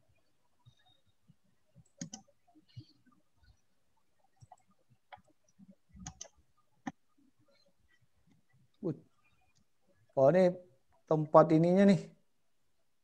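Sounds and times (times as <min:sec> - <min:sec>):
computer mouse clicks: 0:01.8 - 0:03.6, 0:04.2 - 0:07.0.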